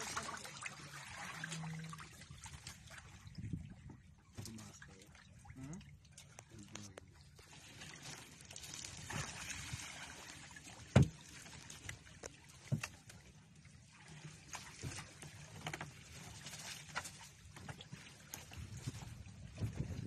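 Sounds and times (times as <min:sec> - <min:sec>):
fishing net running into water: 0:00.0 - 0:20.0
knocks on boat: 0:10.9 - 0:11.2.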